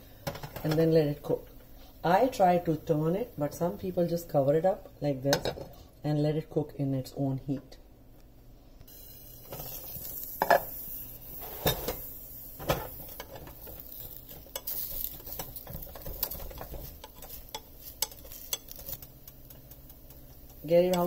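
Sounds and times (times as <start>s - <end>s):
food sizzling in oil: 8.9s - 21.0s
spatula scraping a pan: 12.8s - 21.0s.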